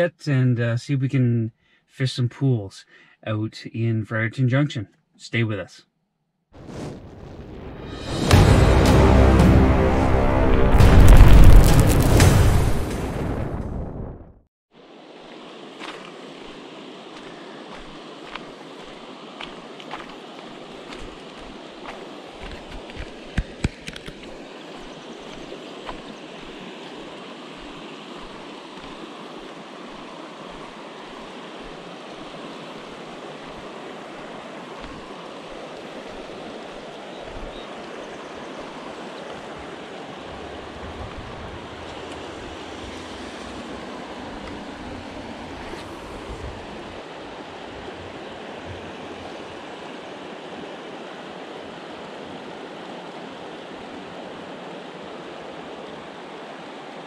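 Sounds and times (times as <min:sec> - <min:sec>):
river water rushing: 0:14.8 - 0:57.0
wind rumble on microphone: 0:39.5 - 0:49.6.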